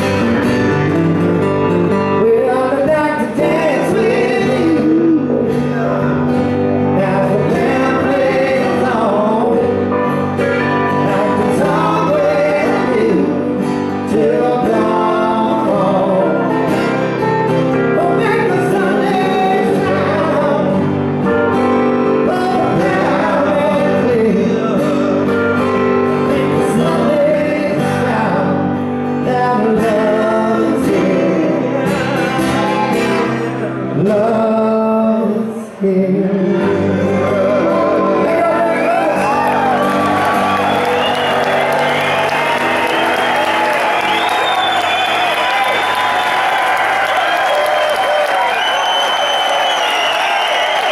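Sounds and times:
strummed acoustic guitars: 0.0s - 50.9s
man singing: 2.1s - 40.4s.

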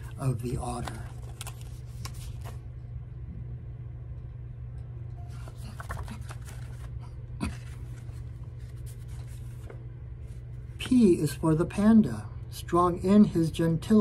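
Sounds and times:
page turning: 0.0s - 2.7s, 5.3s - 11.0s
paper rustling: 0.0s - 2.7s, 5.3s - 11.0s
steady low hum: 0.0s - 14.0s.

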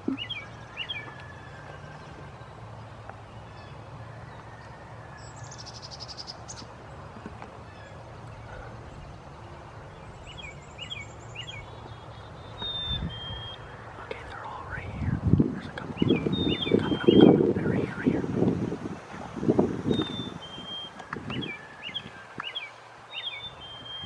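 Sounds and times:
bird trill: 0.0s - 2.2s, 10.0s - 13.8s, 16.0s - 17.4s, 19.9s - 24.0s
low outdoor rumble: 0.0s - 24.0s
short rising bird chirps: 19.9s - 24.0s.

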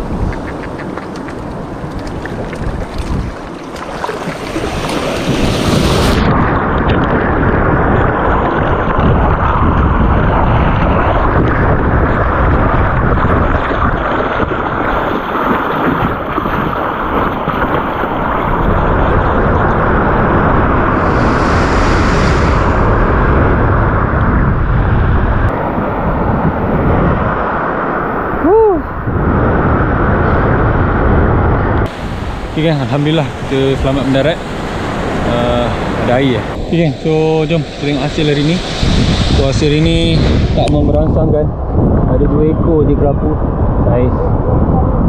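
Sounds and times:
waves breaking: 0.0s - 24.4s, 31.9s - 41.0s
surf washing through shallows: 0.0s - 45.0s
wind rumble on microphone: 0.0s - 45.0s.

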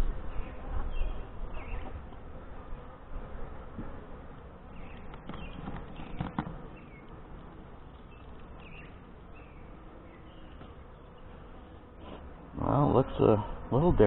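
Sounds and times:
bees buzzing: 0.0s - 14.0s
wooden hive cover knocks and scrapes: 4.8s - 8.6s.

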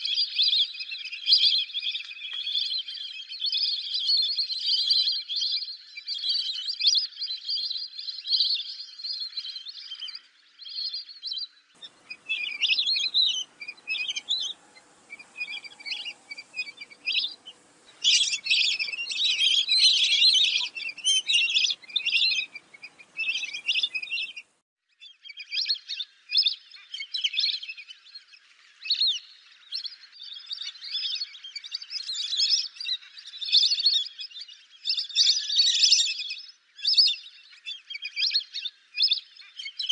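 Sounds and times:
ducks whistling calls: 11.8s - 24.5s.

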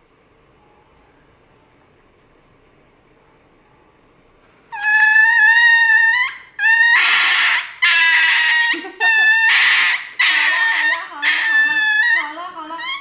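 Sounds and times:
small dog screaming: 4.7s - 13.0s.

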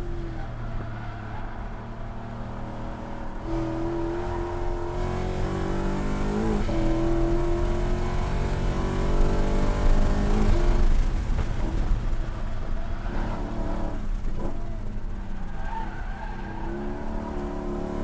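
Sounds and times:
car engine revving at full throttle: 2.2s - 12.0s, 16.8s - 18.0s.

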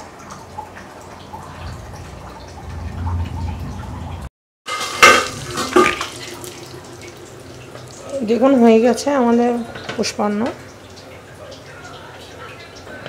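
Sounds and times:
pots and utensils clinking: 4.7s - 6.6s.

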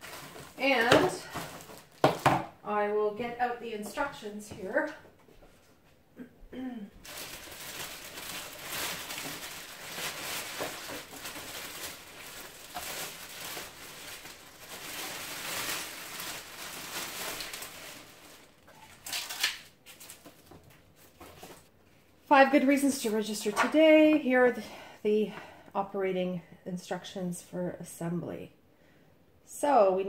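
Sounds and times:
plastic bag crinkling: 0.0s - 2.3s, 7.0s - 21.7s.

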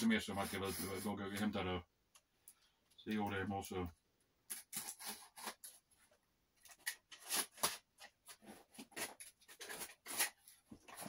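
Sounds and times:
blade cutting packing tape: 6.8s - 7.8s, 8.8s - 10.4s.

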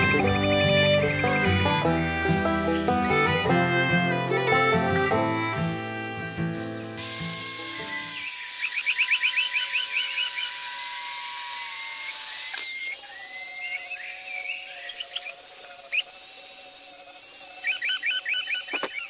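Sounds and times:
angle grinder sanding wood: 0.0s - 19.0s
circular saw cutting wood: 0.0s - 19.0s
rapid chirping trills: 7.7s - 10.6s, 12.7s - 19.0s.

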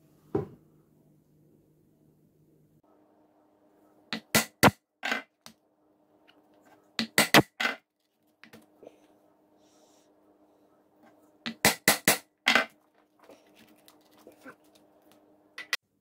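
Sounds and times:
hammer striking steel punch: 4.2s - 4.8s, 7.0s - 7.5s, 11.5s - 12.2s.

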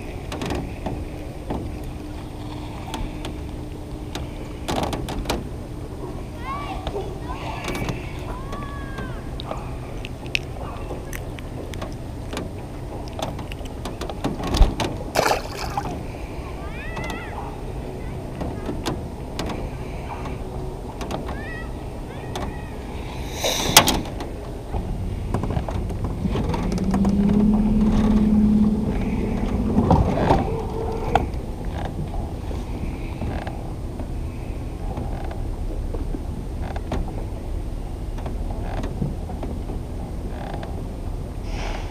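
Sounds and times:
steady low rumble: 0.0s - 41.9s
motor stopping thump: 24.8s - 31.9s.

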